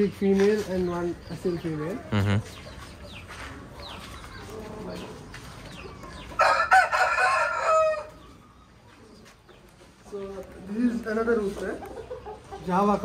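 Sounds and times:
rooster crowing: 6.4 - 8.2.

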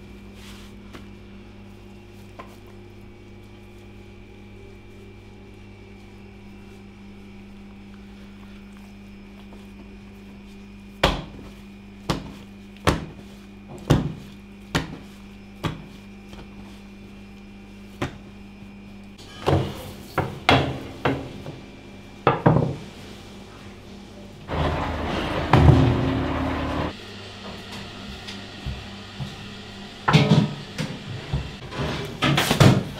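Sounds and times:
steady low hum: 0.0 - 31.6
dough thudding on wooden board: 11.0 - 16.5, 18.0 - 18.3
loud rough noise: 24.5 - 27.0.

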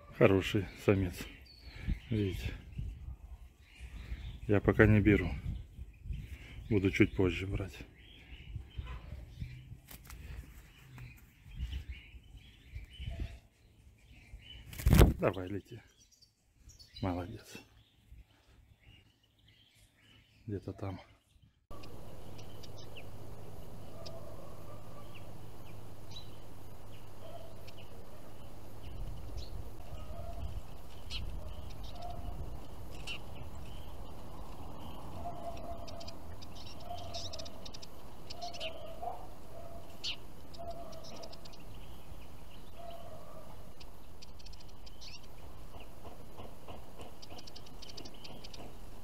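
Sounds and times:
small songbirds chirping: 0.0 - 49.0
lower bird calls: 21.2 - 49.0
low outdoor rumble: 21.7 - 49.0.

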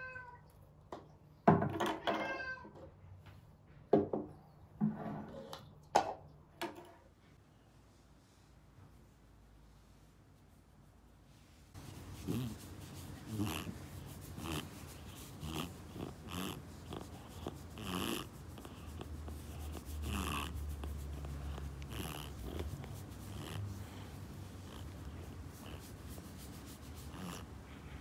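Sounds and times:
fingers rustling through fur: 9.8 - 28.0
cat purring: 11.8 - 28.0.

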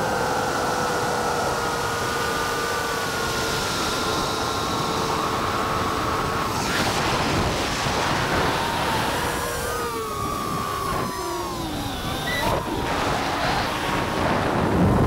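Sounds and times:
quadcopter motors whining: 0.0 - 15.0
wind noise: 3.5 - 15.0.

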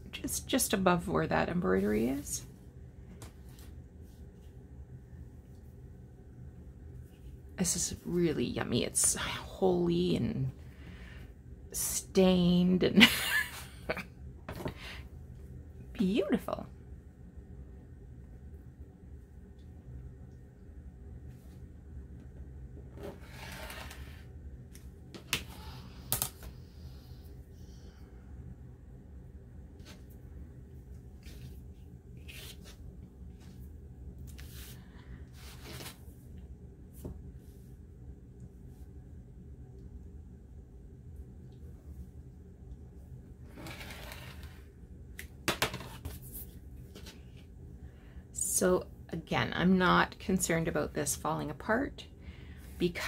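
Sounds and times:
soft rustle: 31.0 - 36.2.

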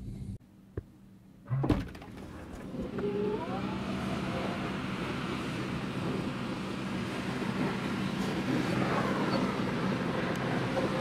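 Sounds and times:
outdoor wind rush: 0.0 - 11.0.

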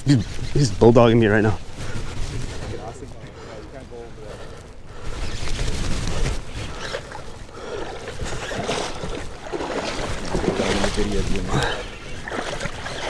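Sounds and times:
water sloshing: 5.0 - 13.0
rushing river water: 6.7 - 13.0.

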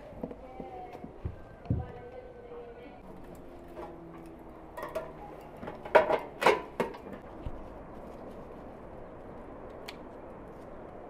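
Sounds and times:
faint outdoor background: 0.0 - 11.0
metal knocks and clatters: 3.7 - 7.2.

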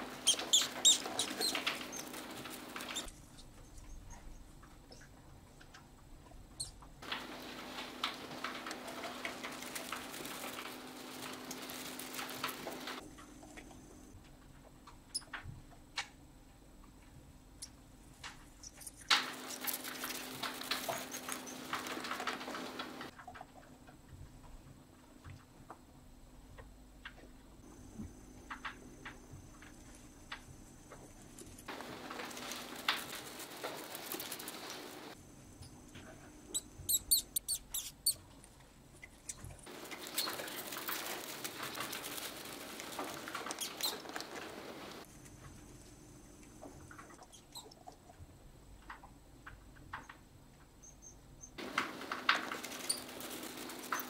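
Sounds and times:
mice rustling in straw: 0.0 - 3.8, 7.0 - 13.1, 18.6 - 23.1, 31.0 - 35.2, 39.6 - 45.8, 51.6 - 54.0
mice squeaking: 0.0 - 5.1, 6.6 - 6.8, 18.6 - 23.1, 36.5 - 38.3, 39.2 - 45.0, 47.0 - 48.0, 50.8 - 54.0.

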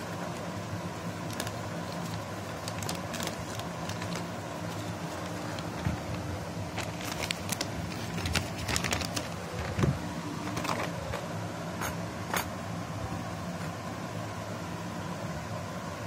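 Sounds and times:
plastic bag rustling: 0.0 - 11.1
low background hum: 0.0 - 16.0.

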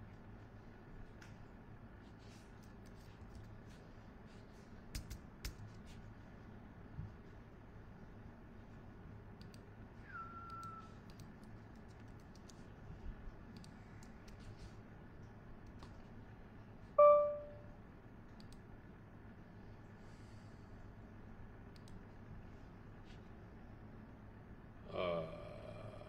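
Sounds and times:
low room hum: 0.0 - 26.0
faint clicks: 9.4 - 9.7, 10.5 - 12.6, 13.5 - 14.4, 18.3 - 18.6, 21.7 - 22.0
short ringing tone: 10.1 - 10.9, 17.0 - 17.7.

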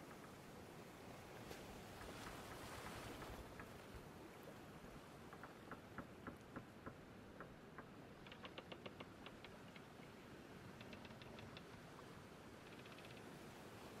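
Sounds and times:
faint light clicks: 10.8 - 11.8, 12.6 - 13.3.

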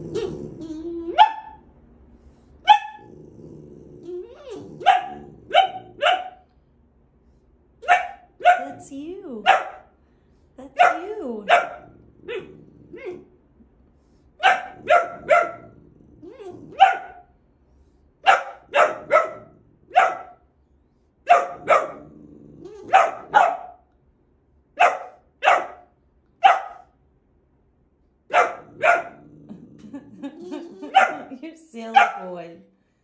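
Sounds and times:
puppy barking: 1.0 - 1.6, 2.7 - 3.1, 4.8 - 6.5, 7.8 - 8.8, 9.4 - 9.9, 10.8 - 13.3, 14.4 - 15.7, 16.7 - 17.3, 18.2 - 20.4, 21.3 - 22.0, 22.8 - 23.9, 24.8 - 27.0, 28.3 - 29.2, 30.8 - 32.4.

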